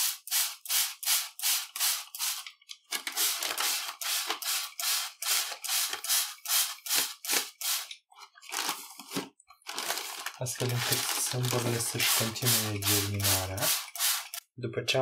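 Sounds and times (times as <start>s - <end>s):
spray bottle hissing mist: 0.0s - 2.5s, 3.2s - 7.9s, 11.5s - 14.4s.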